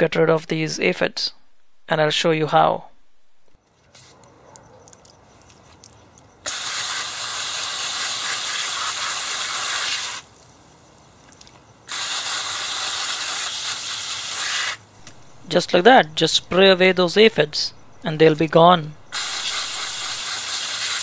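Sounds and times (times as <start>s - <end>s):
hose nozzle spraying water: 6.5s - 10.4s, 11.9s - 15.2s, 19.1s - 21.0s.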